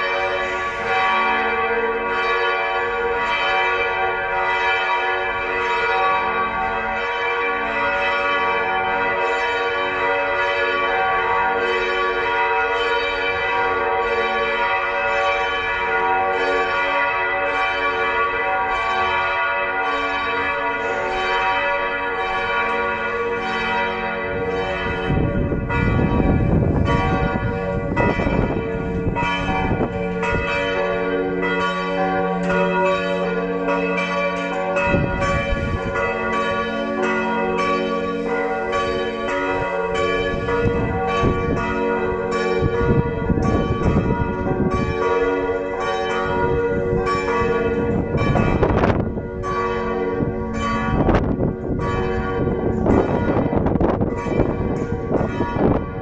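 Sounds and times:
church bells ringing: 0.0s - 56.0s
wind rumbling on microphone: 20.4s - 56.0s.

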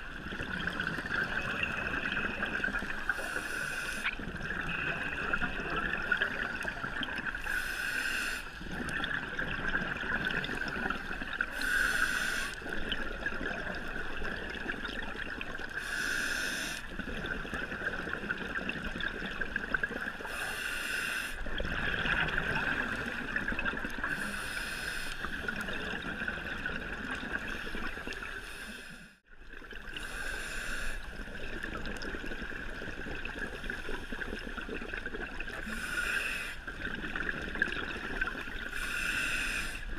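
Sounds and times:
underwater hum: 0.0s - 39.9s
diver exhaling bubbles: 21.4s - 24.5s.

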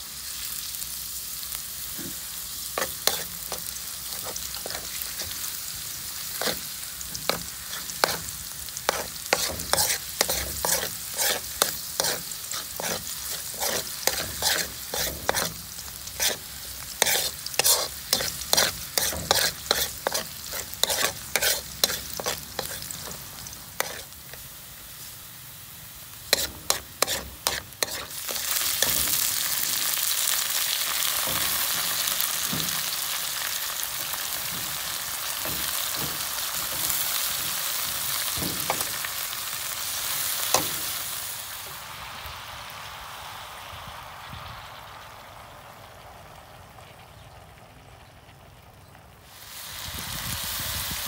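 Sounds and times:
garlic frying in oil: 0.0s - 51.0s
loud steady sizzle: 0.0s - 51.0s
metal spoon scraping a wok: 2.0s - 24.6s, 26.2s - 30.4s, 34.4s - 39.3s, 39.9s - 41.0s.

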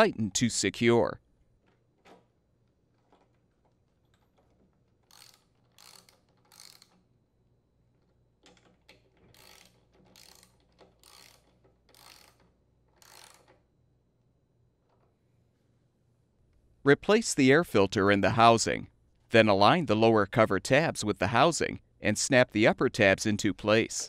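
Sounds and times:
socket ratchet clicking: 4.4s - 7.1s, 8.4s - 13.6s.

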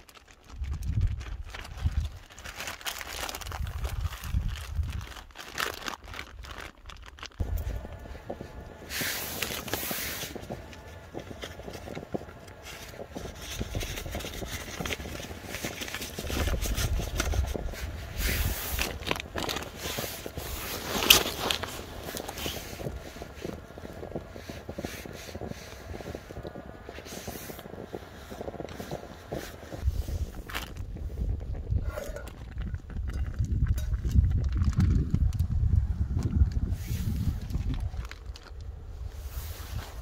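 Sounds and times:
plastic bag rustling: 0.0s - 25.4s, 37.0s - 40.0s
wind rumbling on microphone: 0.2s - 40.0s.

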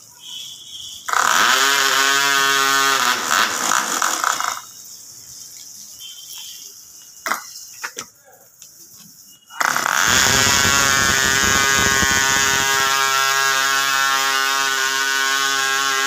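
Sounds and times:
model airplane engine running: 10.0s - 16.0s.

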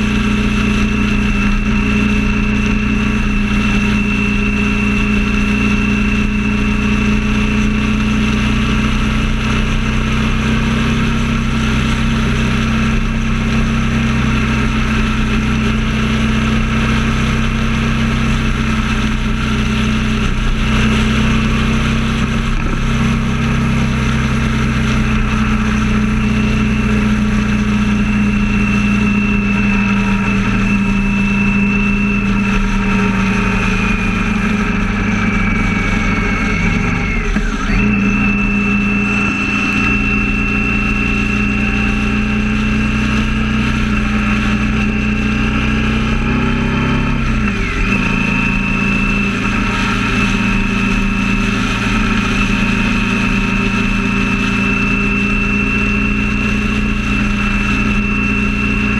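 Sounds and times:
steady rushing noise: 0.0s - 44.9s
vehicle engine drone: 0.0s - 58.9s.

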